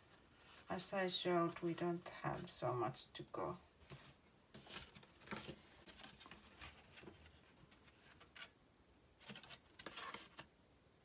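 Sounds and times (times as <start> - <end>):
paper rustling: 3.8 - 8.6, 9.2 - 10.5.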